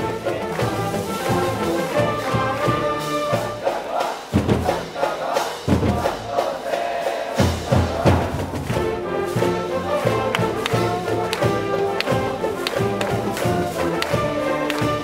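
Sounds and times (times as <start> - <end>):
crowd chanting: 0.0 - 9.0
brass band playing: 0.0 - 15.0.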